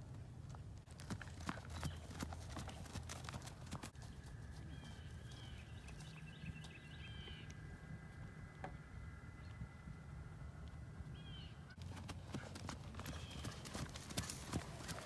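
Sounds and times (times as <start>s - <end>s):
horse hooves on turf: 0.0s - 7.3s, 11.7s - 15.0s.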